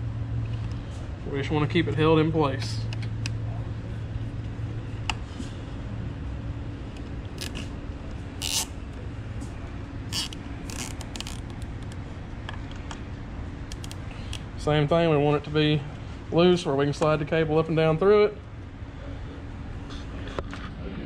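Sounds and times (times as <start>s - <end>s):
steady low hum: 0.0s - 21.0s
zip tie zipping and clicking: 7.4s - 7.7s, 8.4s - 8.7s, 10.1s - 11.6s.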